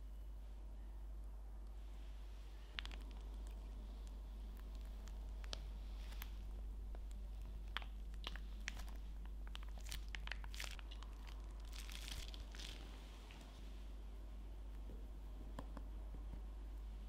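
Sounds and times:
small wet clicks: 0:02.7 - 0:13.5
plastic crinkling: 0:02.7 - 0:13.6
piping bag squeezed: 0:07.0 - 0:13.5.

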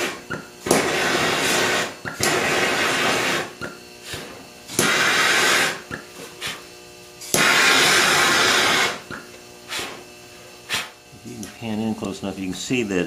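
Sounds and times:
torch flame rushing: 0:00.0 - 0:09.1, 0:09.7 - 0:11.0
propane torch hissing: 0:00.0 - 0:13.0.

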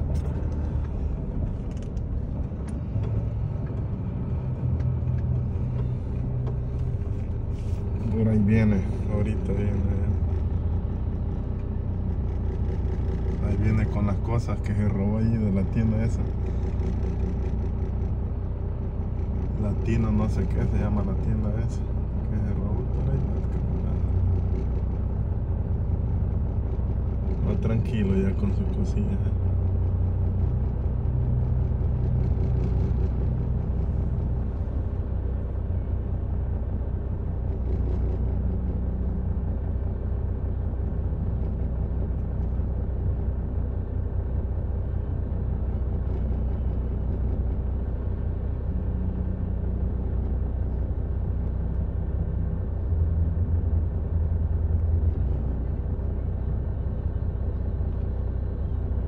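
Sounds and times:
car engine running inside cabin: 0:00.0 - 0:59.0.

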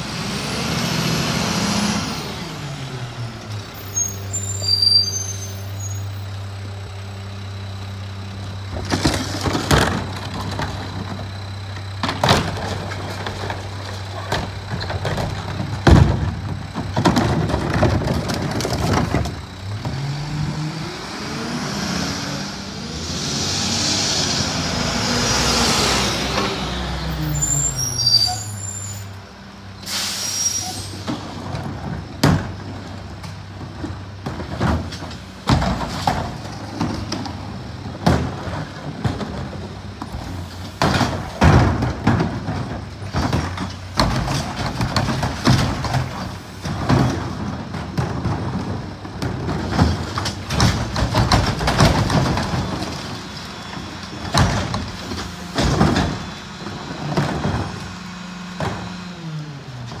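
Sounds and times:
diesel engine idling: 0:05.2 - 0:21.6
trash carts banging: 0:07.8 - 0:29.1, 0:29.9 - 1:00.0.

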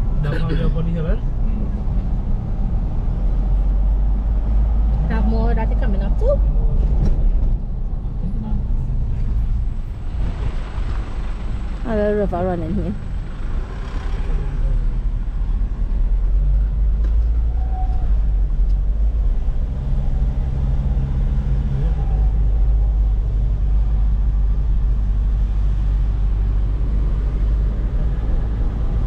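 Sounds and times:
car engine and road noise: 0:00.0 - 0:29.0.

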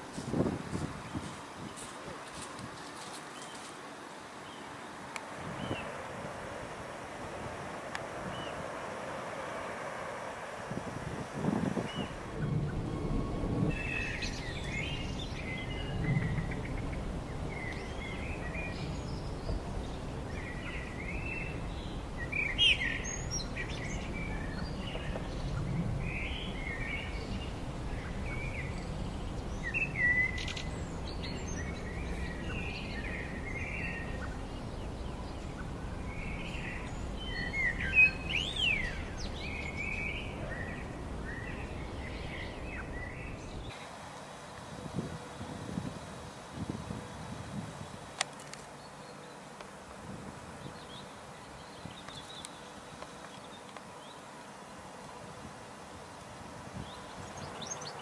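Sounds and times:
small birds chirping: 0:00.0 - 0:06.0, 0:11.8 - 0:44.6, 0:50.5 - 0:54.9, 0:56.8 - 0:58.0.

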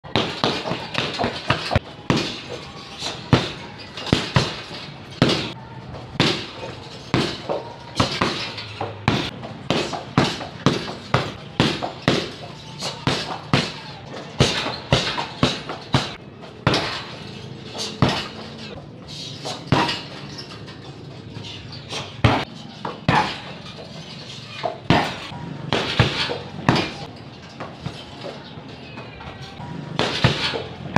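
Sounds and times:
kicks slapping a heavy bag: 0:00.1 - 0:02.6, 0:03.3 - 0:05.5, 0:06.2 - 0:12.4, 0:13.0 - 0:13.8, 0:14.4 - 0:17.1, 0:17.8 - 0:18.4, 0:22.0 - 0:22.4, 0:23.1 - 0:23.5, 0:24.9 - 0:27.0, 0:30.0 - 0:30.9.

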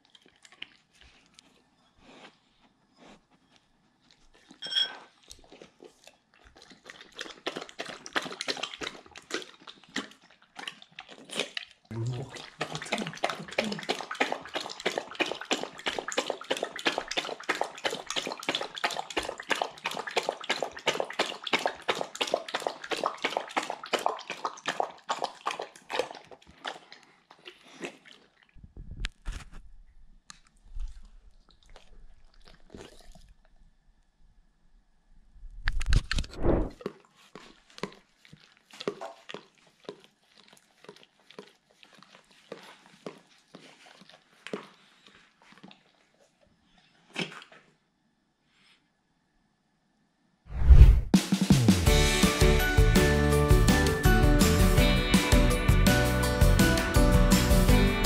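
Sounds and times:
dish clinking: 0:04.6 - 0:05.0
dog licking plates: 0:05.2 - 0:28.6, 0:36.8 - 0:46.4
dog lapping water: 0:05.3 - 0:28.6, 0:30.7 - 0:33.6, 0:36.7 - 0:46.4.

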